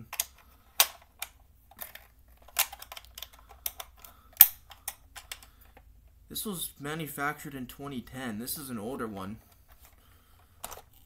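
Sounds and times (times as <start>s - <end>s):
plastic toy clicking: 2.5s - 5.5s.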